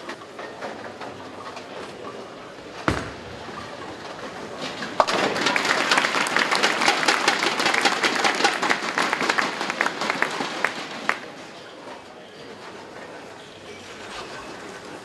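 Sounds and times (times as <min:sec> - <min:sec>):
bowling ball knocking down pin: 0:02.8 - 0:05.4
audience applause: 0:05.0 - 0:11.3.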